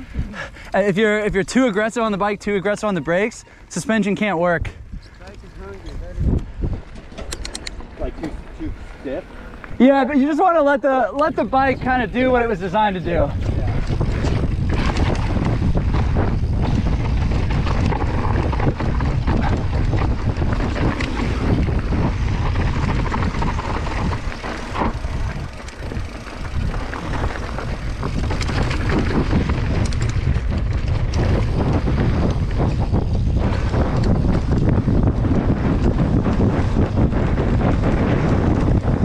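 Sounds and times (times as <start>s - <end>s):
bike tyres on loose dirt: 0.0s - 39.0s
wind on microphone: 4.0s - 39.0s.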